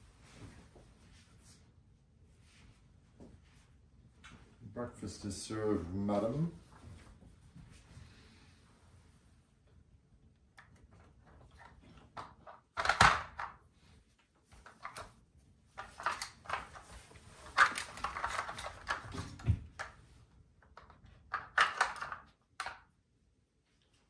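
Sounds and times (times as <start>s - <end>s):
plastic puzzle feeder clattering on tile: 10.7s - 13.6s, 14.5s - 15.1s, 15.8s - 20.0s, 20.6s - 22.9s.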